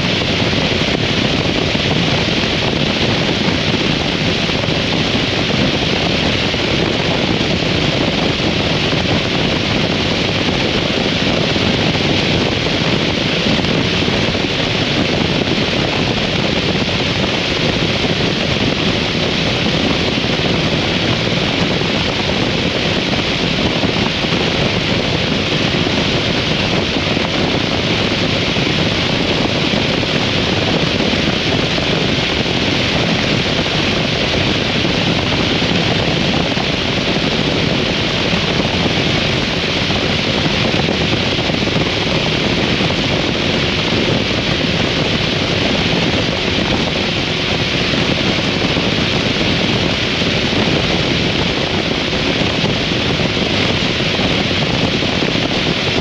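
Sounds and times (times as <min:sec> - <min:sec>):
wind rushing on microphone: 0:00.0 - 0:56.0.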